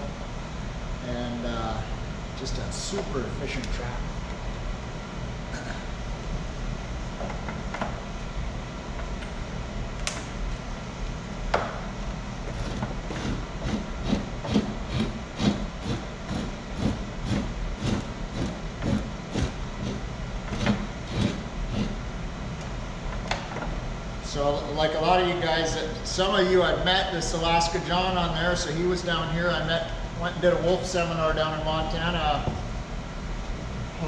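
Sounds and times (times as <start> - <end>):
steady low hum: 0.0 - 34.0
knife scraping hide: 12.5 - 22.0.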